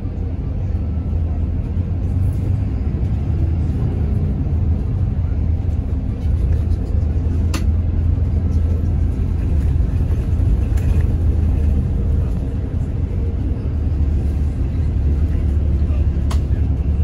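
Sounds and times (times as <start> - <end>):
bus engine rumble: 0.0 - 17.0
road noise: 0.0 - 17.0.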